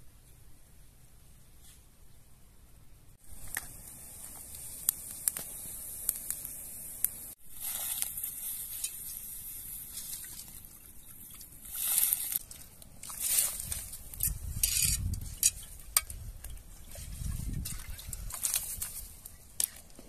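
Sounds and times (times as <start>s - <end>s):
fire crackling: 3.2s - 20.0s.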